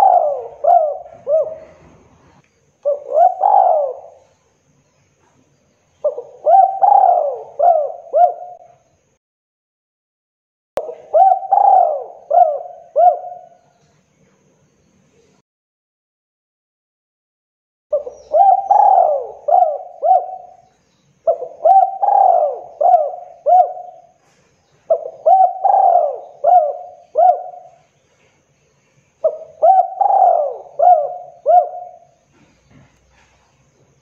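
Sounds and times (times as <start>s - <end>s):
dove cooing: 0.0s - 4.5s, 6.0s - 8.9s, 10.8s - 13.7s, 17.9s - 28.0s, 29.2s - 33.4s.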